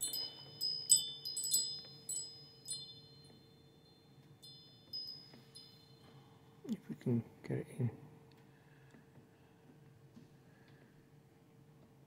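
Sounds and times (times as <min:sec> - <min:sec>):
wind chime ringing: 0:00.0 - 0:06.9.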